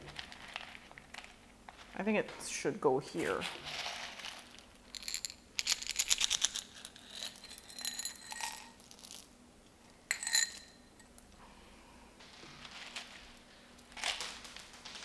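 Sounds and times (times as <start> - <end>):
clay pebbles rattling and clinking: 0.0 - 2.6, 3.2 - 9.3.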